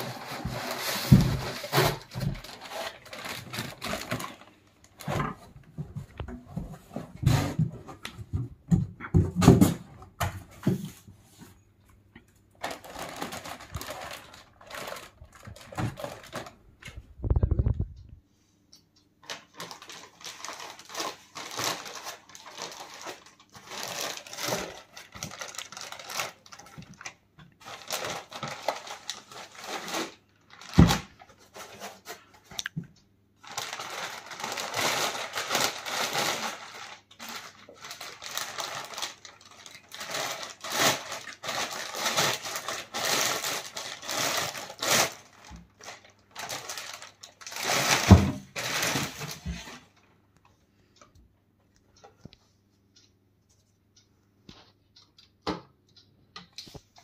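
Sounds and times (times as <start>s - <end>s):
plastic bag crinkling: 0.0s - 5.5s, 12.6s - 16.6s, 19.2s - 32.7s, 33.4s - 50.0s.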